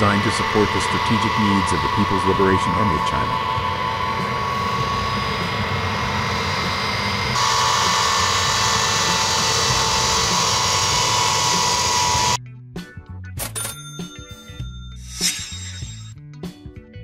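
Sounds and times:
jet engines whining: 0.0s - 12.4s.

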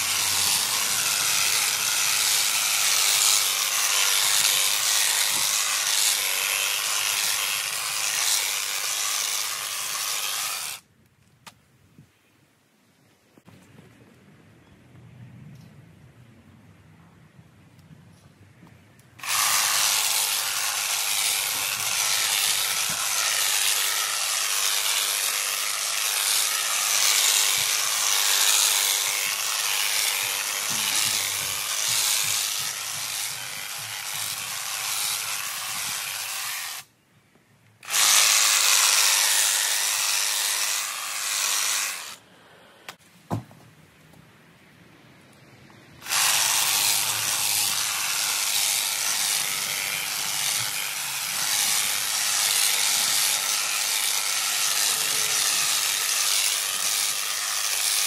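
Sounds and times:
hedge trimmer cutting hedge: 0.0s - 10.8s, 19.2s - 36.9s, 37.8s - 42.2s, 46.0s - 58.0s.

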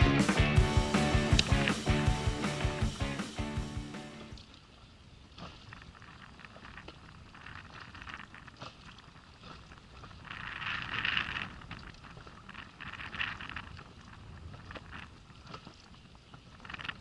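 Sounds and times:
small waves splashing against hull: 4.1s - 17.0s.

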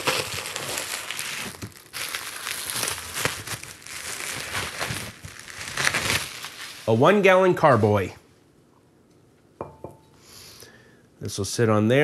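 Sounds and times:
bubble wrap crinkling: 0.0s - 8.0s.

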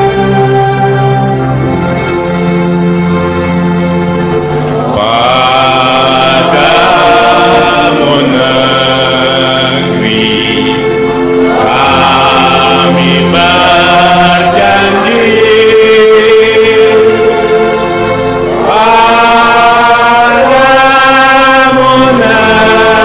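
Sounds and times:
choir singing: 4.6s - 23.0s.

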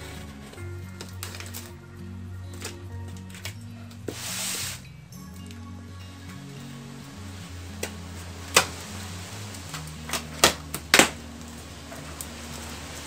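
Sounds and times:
packing tape and cardboard cracking: 0.0s - 1.8s, 2.5s - 4.8s, 7.8s - 13.0s
quiet background music: 0.0s - 13.0s.

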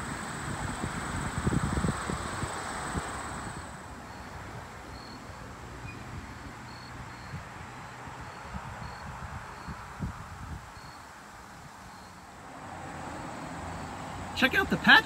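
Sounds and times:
wind rumble on microphone: 0.0s - 4.8s, 8.2s - 13.3s
faint cricket chirps: 0.2s - 6.0s, 6.7s - 7.5s, 8.2s - 9.9s, 10.8s - 11.2s, 11.8s - 12.4s.

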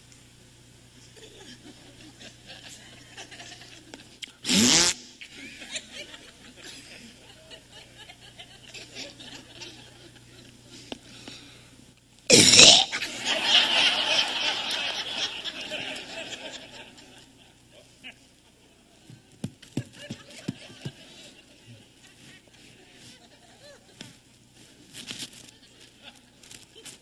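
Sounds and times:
audience laughing: 1.2s - 4.1s, 5.2s - 10.9s, 12.9s - 18.8s, 19.8s - 24.0s.

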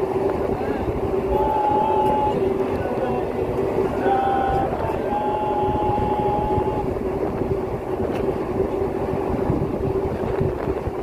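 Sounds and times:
ship engines droning: 0.0s - 11.0s
wind buffeting microphone: 0.0s - 11.0s
held high tone: 0.6s - 7.0s.

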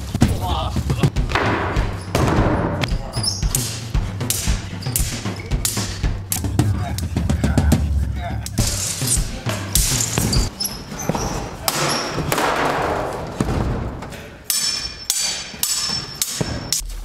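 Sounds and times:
swords clashing: 1.4s - 6.6s, 8.5s - 16.9s.

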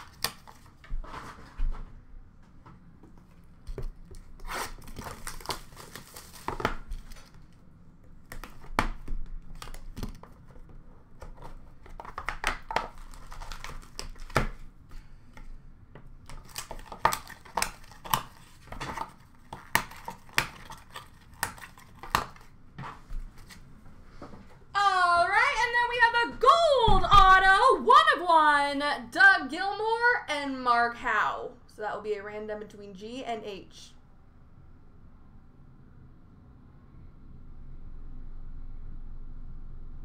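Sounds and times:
packaging crinkling and tearing: 0.0s - 0.8s, 4.2s - 7.6s, 11.2s - 14.7s, 16.2s - 22.6s
cardboard and card taps: 8.3s - 14.6s.

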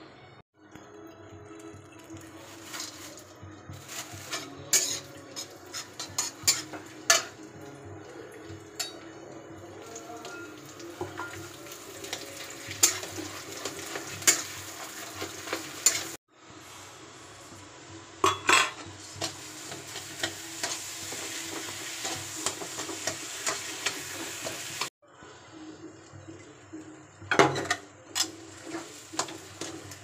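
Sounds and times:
soft sizzle: 0.6s - 30.0s
metal spatula scraping a pan: 3.8s - 7.4s, 12.1s - 16.2s, 18.5s - 24.9s.

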